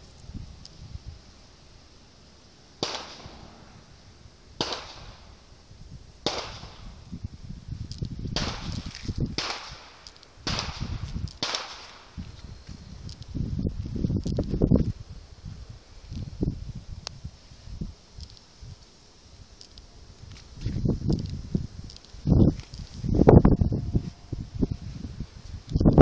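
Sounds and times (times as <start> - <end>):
footsteps crunching in dry sand: 6.6 - 26.0.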